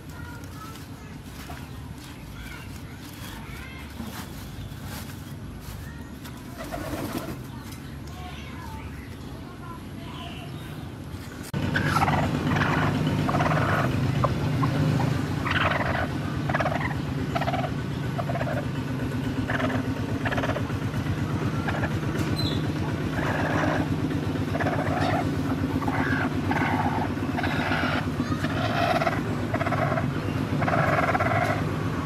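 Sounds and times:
hen clucking and squawking: 6.5 - 7.4, 11.6 - 31.8.

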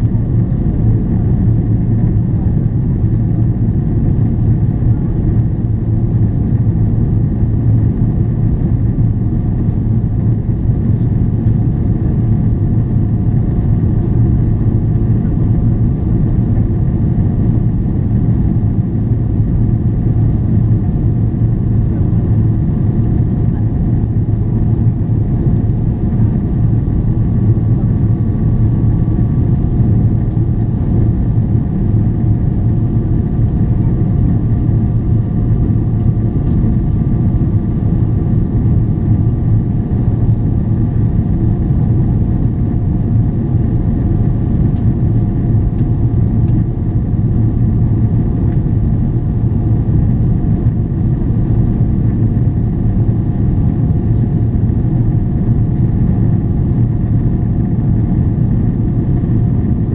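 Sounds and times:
airplane cabin rumble: 0.0 - 59.9
faint steady whine: 0.0 - 59.9.

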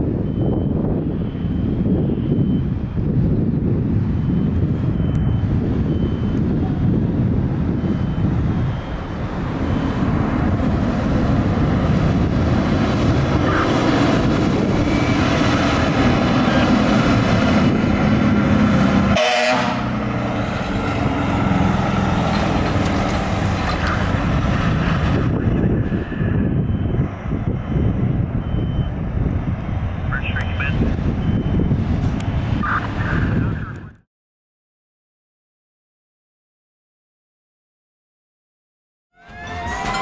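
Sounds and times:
fire truck diesel engine: 0.0 - 34.0
air horn blasts: 19.1 - 20.0, 39.2 - 40.0.

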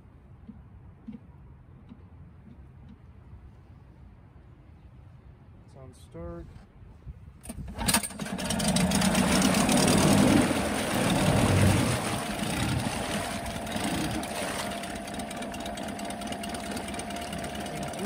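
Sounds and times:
outboard motor running: 7.7 - 18.0.

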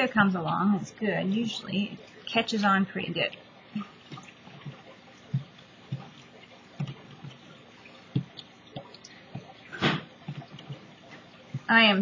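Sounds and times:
soft wet tapping: 3.3 - 12.0.

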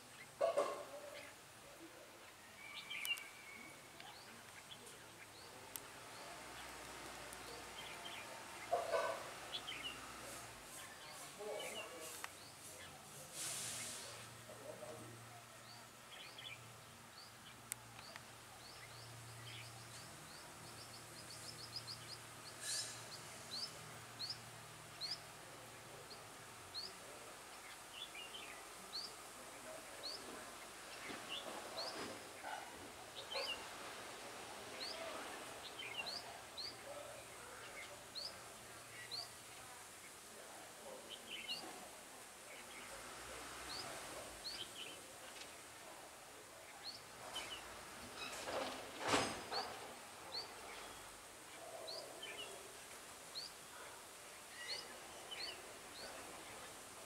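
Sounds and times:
birds chirping: 0.0 - 57.0
warbled birdsong: 0.0 - 57.0.

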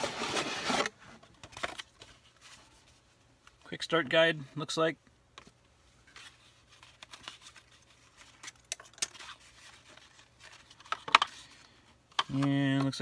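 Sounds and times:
paper rustling: 6.1 - 11.6.

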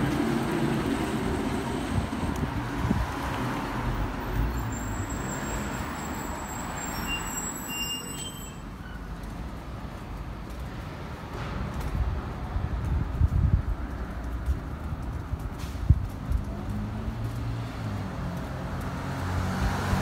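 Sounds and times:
traffic rumble: 0.0 - 20.0
high-pitched squeal: 4.4 - 9.0.

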